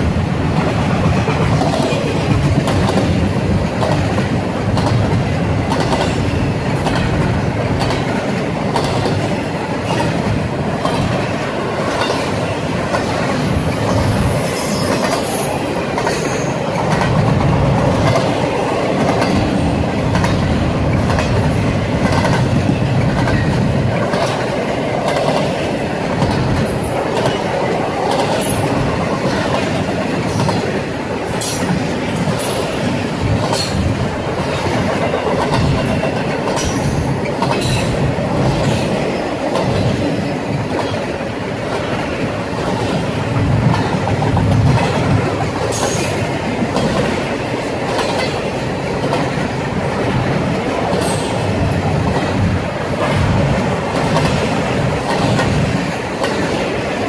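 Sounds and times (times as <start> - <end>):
train wheels clicking over rails: 0.0 - 57.0
high wheel squeal: 13.6 - 15.5.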